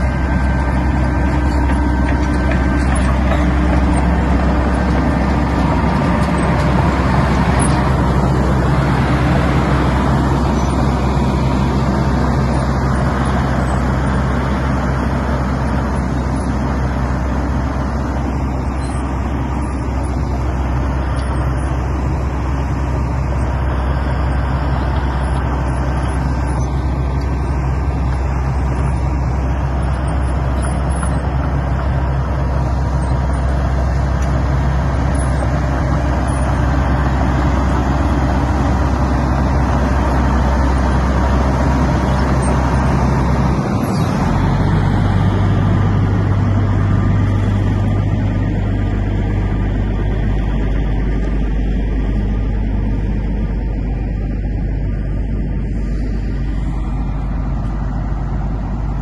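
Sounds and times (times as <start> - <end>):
large diesel engine droning: 0.0 - 59.0.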